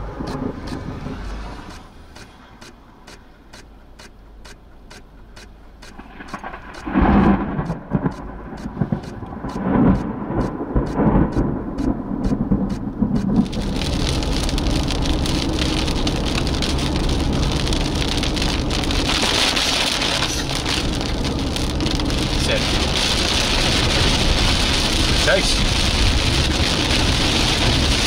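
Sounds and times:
heavy rain on car: 0.0s - 2.4s, 5.3s - 28.0s
road noise: 0.0s - 28.0s
thunder rumbling: 5.9s - 28.0s.

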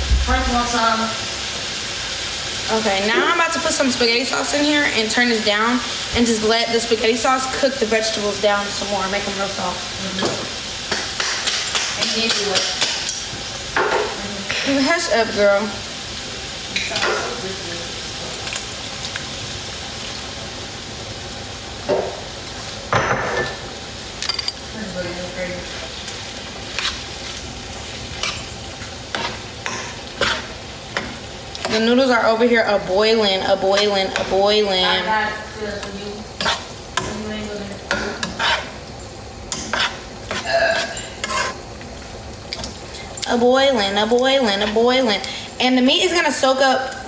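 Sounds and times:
food sizzling in a pan: 0.0s - 47.0s
utensil scraping inside pot: 26.7s - 27.4s, 28.2s - 30.6s, 36.4s - 37.1s, 37.9s - 38.8s, 39.5s - 41.7s.

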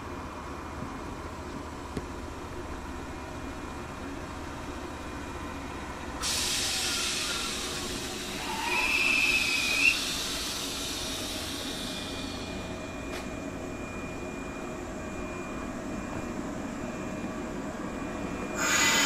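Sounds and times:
standing train humming: 0.0s - 19.0s
train brake squeal: 6.2s - 12.6s, 18.6s - 19.0s.

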